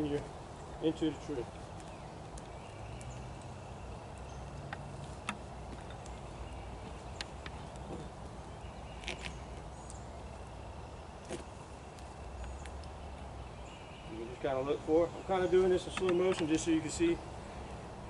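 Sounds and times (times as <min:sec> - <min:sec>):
boots and climbing gear clicking: 0:04.2 - 0:08.2, 0:09.0 - 0:10.0, 0:15.3 - 0:16.7.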